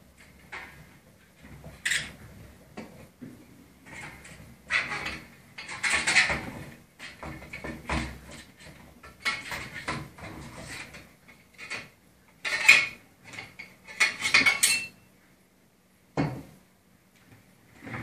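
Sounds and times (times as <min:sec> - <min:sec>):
metal rods clinking and scraping: 0:03.9 - 0:07.6, 0:08.3 - 0:15.0.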